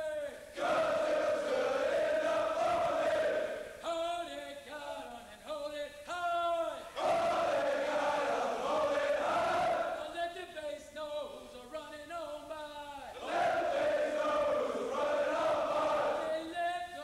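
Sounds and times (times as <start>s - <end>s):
group of men chanting: 0.6s - 3.8s, 7.0s - 10.0s, 13.2s - 16.4s.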